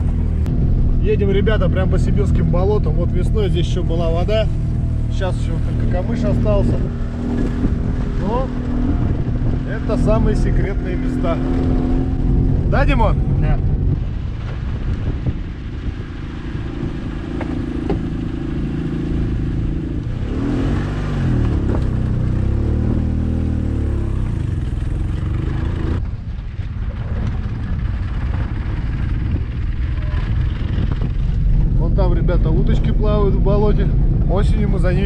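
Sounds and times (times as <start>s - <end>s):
car engine revving: 0.0s - 26.0s, 29.4s - 35.0s
car knocking over bumps: 17.3s - 18.3s.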